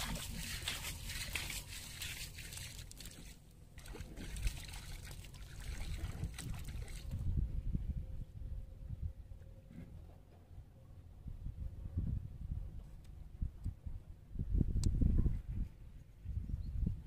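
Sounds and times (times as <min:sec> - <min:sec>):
water trickling and sloshing: 0:00.0 - 0:07.4.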